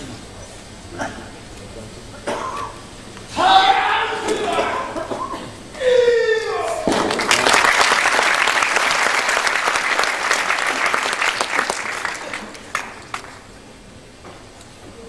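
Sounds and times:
audience applauding: 0:06.7 - 0:13.6.

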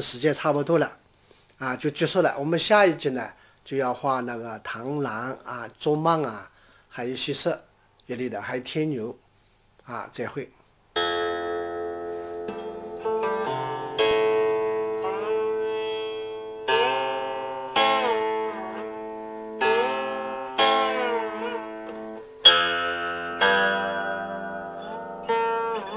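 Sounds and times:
plucked zither melody: 0:11.0 - 0:25.9.

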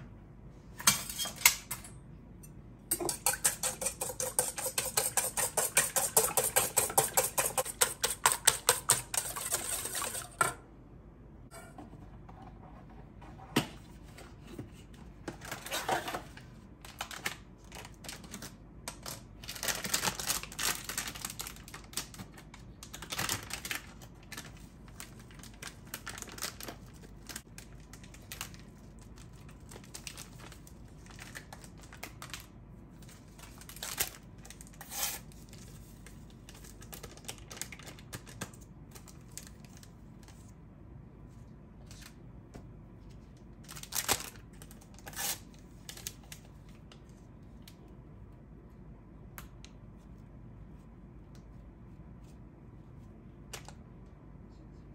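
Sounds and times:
plastic package crinkling: 0:22.9 - 0:28.7.

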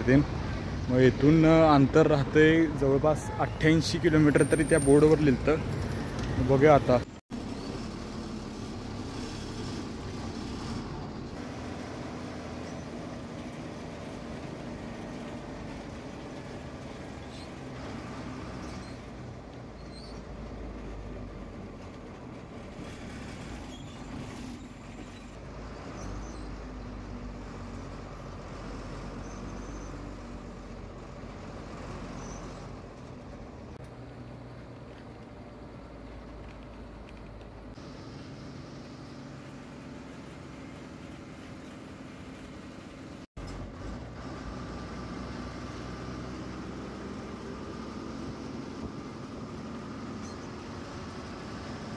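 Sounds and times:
bus diesel engine running: 0:00.0 - 0:51.9.

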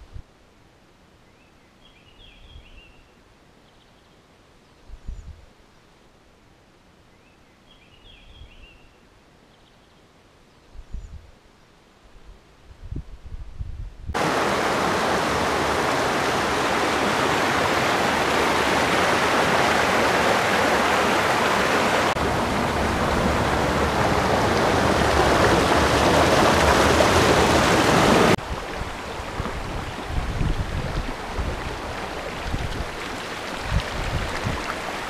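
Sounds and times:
stream rushing over rocks: 0:14.2 - 0:35.0.

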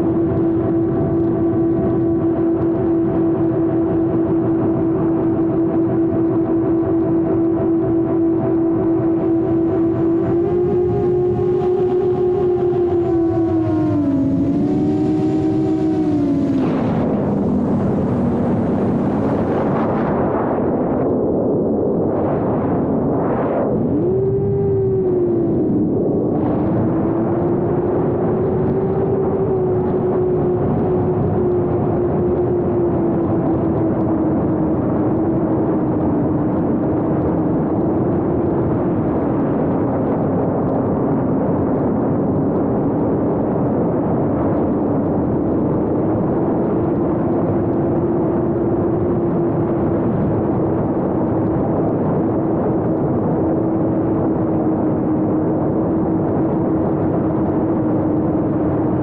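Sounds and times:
rushing air noise: 0:08.8 - 0:24.9
drone motors whirring: 0:09.0 - 0:20.1.

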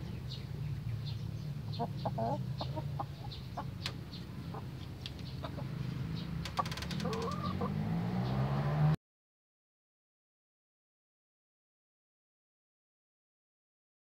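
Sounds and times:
hens clucking: 0:01.6 - 0:07.9
sharp clicks: 0:06.4 - 0:07.5.

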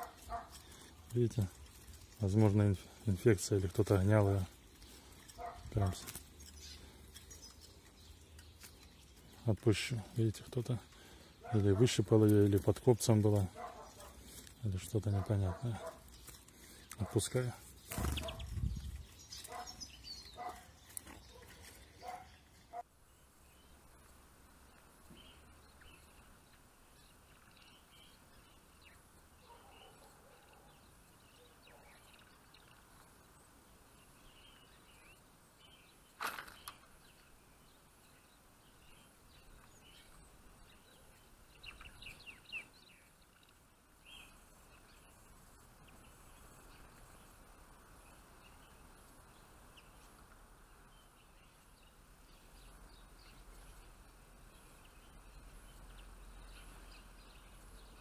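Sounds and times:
rustling: 0:00.0 - 0:10.2, 0:10.8 - 0:22.8.

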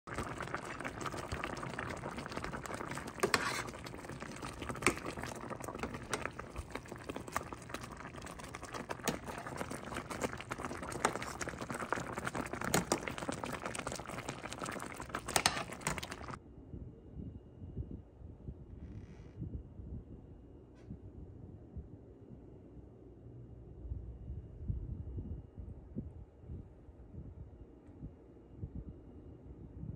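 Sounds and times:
gravy bubbling and popping: 0:00.0 - 0:16.4.

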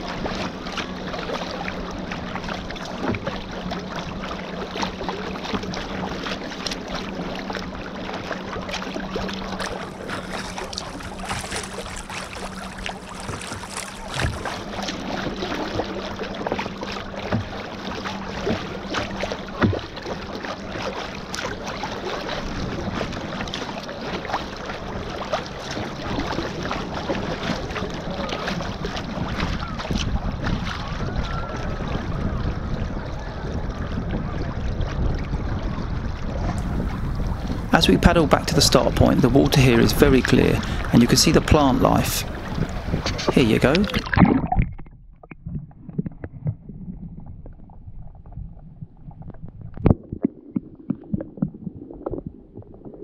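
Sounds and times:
paddle splashes: 0:00.0 - 0:46.7
water lapping around kayak: 0:00.0 - 0:53.0
wind on microphone: 0:09.5 - 0:15.9, 0:25.7 - 0:53.0.

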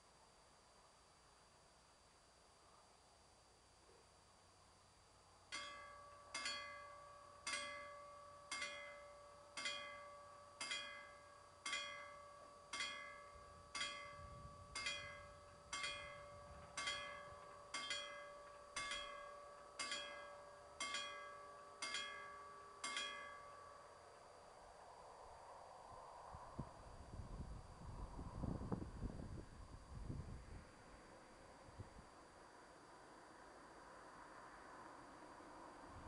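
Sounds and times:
level crossing warning bell: 0:05.5 - 0:25.1.

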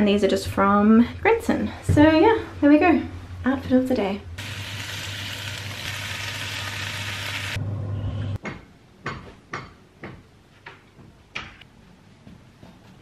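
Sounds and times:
food sizzling in frying pan: 0:04.4 - 0:07.6.

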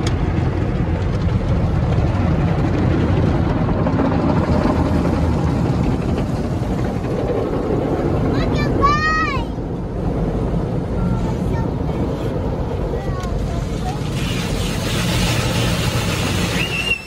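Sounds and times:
car wash brushes scrubbing: 0:13.0 - 0:17.0
water spray: 0:13.4 - 0:17.0.

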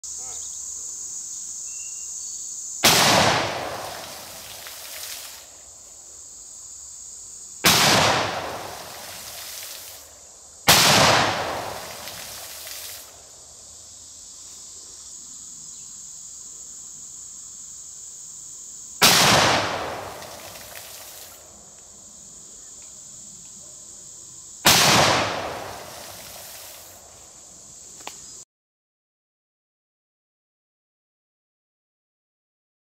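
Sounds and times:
high insect trill: 0:00.0 - 0:28.4
shotgun blasts with echo: 0:02.8 - 0:04.6, 0:07.6 - 0:09.3, 0:10.7 - 0:12.6, 0:19.0 - 0:21.1, 0:24.6 - 0:26.4.

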